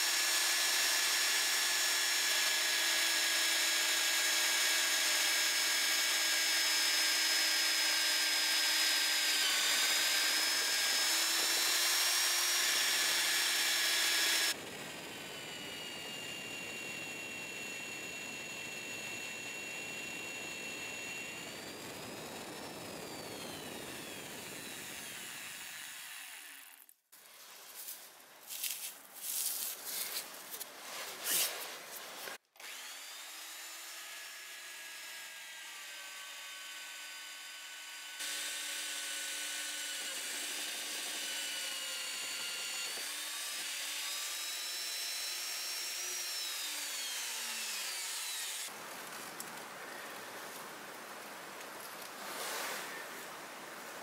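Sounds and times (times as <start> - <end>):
drill bit scraping and chattering: 0.1 - 14.6, 15.2 - 26.9, 32.6 - 48.7
drill press motor whine: 0.1 - 26.8, 32.6 - 48.7.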